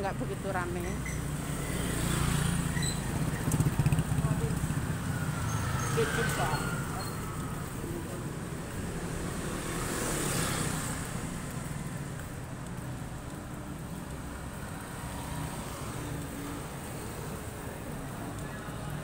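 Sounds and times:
motor scooter engines running: 0:00.0 - 0:19.0
road noise hiss: 0:00.0 - 0:19.0
vehicle passing close: 0:01.3 - 0:11.6.

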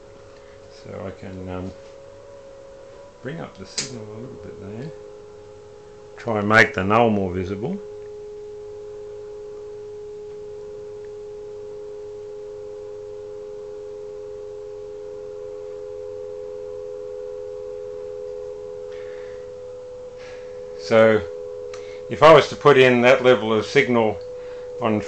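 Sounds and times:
two close test tones: 0:00.3 - 0:12.2, 0:12.8 - 0:25.0
faint receiver hiss: 0:03.4 - 0:05.0, 0:09.5 - 0:11.2, 0:20.2 - 0:25.0.

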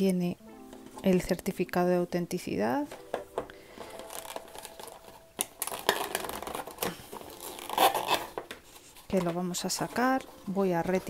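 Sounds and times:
paper and cardboard rustling: 0:02.8 - 0:11.0.

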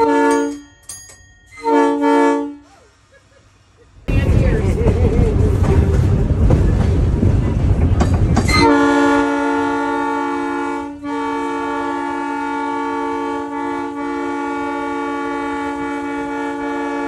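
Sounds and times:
multi-tone horn blast: 0:00.0 - 0:00.6, 0:01.6 - 0:02.7, 0:08.5 - 0:17.0.

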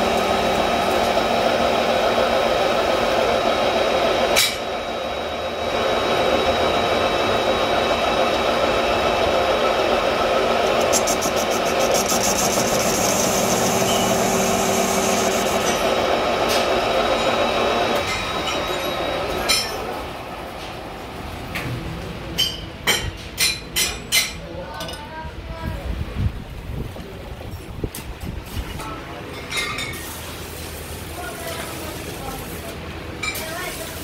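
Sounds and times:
metal lathe machining with whine: 0:00.0 - 0:21.2.

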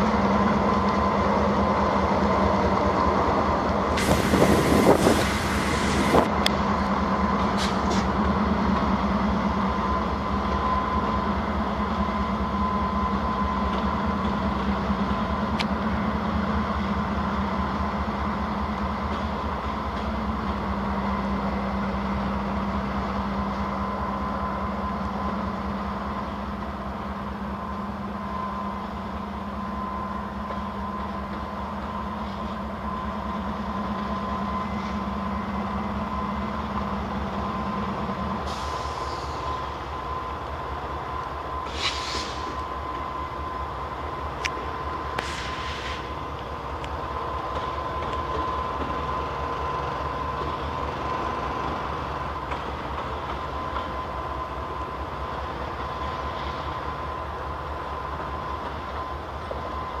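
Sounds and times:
freight train rumbling past: 0:00.0 - 1:00.0
short high hisses: 0:41.7 - 0:42.6, 0:45.2 - 0:46.1.

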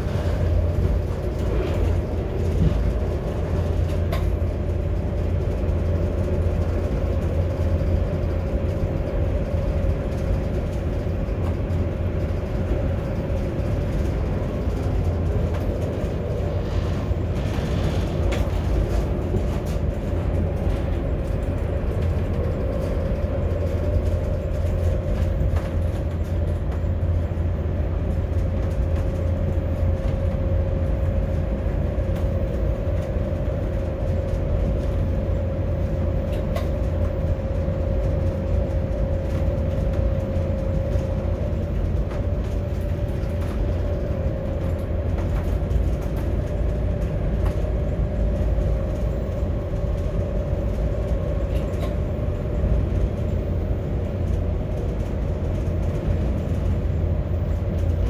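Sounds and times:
constant hum: 0:00.0 - 0:58.0
train rumbling: 0:00.0 - 0:58.0.

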